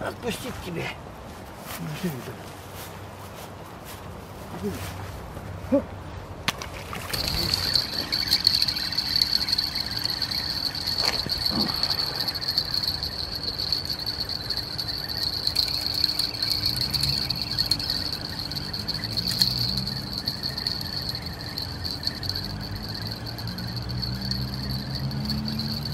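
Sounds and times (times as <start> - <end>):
small water splash: 6.5 - 8.5
insects trilling: 6.9 - 25.9.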